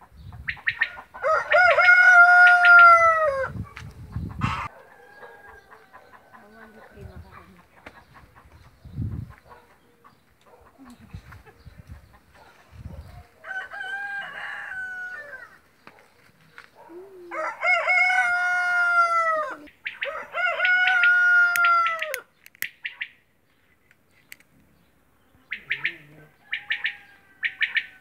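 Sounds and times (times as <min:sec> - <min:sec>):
rooster crowing: 0:01.1 - 0:03.6, 0:04.4 - 0:06.4, 0:13.4 - 0:15.6, 0:17.3 - 0:22.3, 0:26.3 - 0:28.0.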